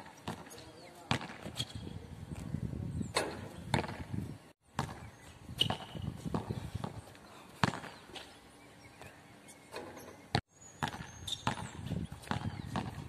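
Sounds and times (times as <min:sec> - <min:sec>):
basketball bouncing on hard court: 0:00.1 - 0:01.8, 0:03.2 - 0:04.1, 0:04.7 - 0:07.0, 0:07.6 - 0:08.0, 0:10.3 - 0:13.0.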